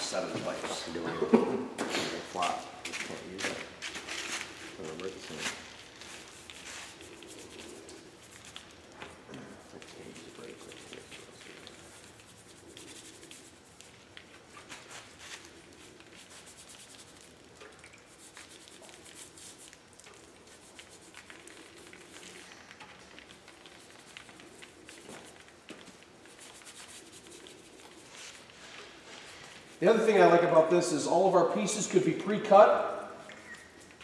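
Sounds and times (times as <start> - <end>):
brush scrubbing on concrete: 2.4 - 8.6, 9.6 - 22.5, 23.2 - 32.6.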